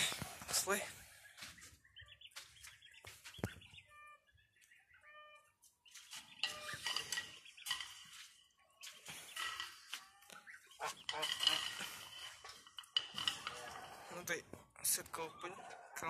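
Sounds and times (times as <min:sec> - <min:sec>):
scuffing and rustling movement: 0:01.4 - 0:03.6
hens clucking: 0:04.8 - 0:16.0.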